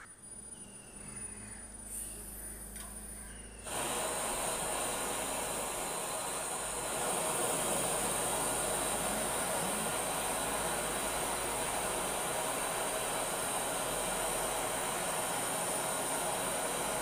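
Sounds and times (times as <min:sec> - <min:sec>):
torch flame hissing: 0:03.6 - 0:17.0.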